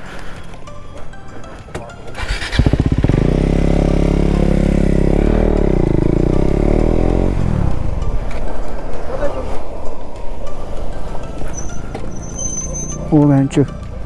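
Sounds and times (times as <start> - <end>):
motorcycle engine riding off: 2.1 - 13.1.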